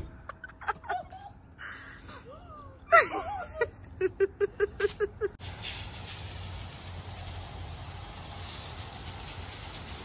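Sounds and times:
person laughing: 0:00.2 - 0:05.4
hose spraying water on concrete: 0:05.4 - 0:10.0.

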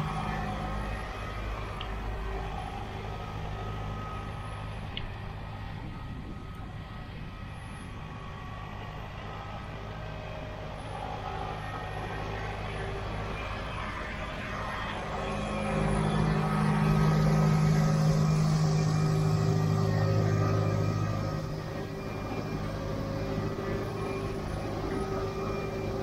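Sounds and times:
harvester running: 0:00.0 - 0:04.9, 0:09.4 - 0:26.0
tractor diesel engine running: 0:10.9 - 0:26.0.

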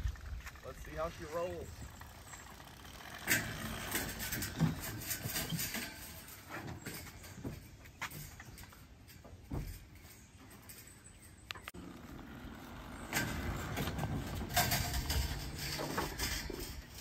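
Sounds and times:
dirt bikes clunking on metal ramp: 0:00.2 - 0:17.0.

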